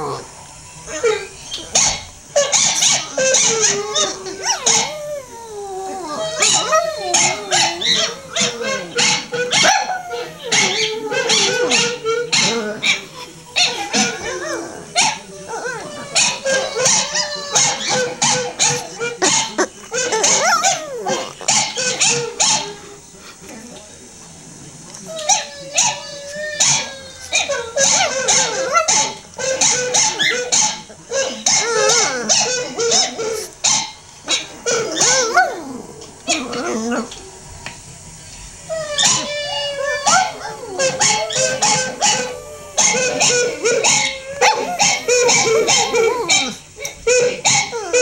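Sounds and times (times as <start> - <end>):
dog howling: 0.0 - 23.0, 25.0 - 33.4, 34.3 - 37.6, 38.5 - 48.0
recorded howling from speakers: 0.0 - 48.0
dog barking: 1.7 - 5.3, 6.0 - 14.3, 15.0 - 15.3, 16.1 - 22.8, 27.4 - 35.6, 40.0 - 48.0.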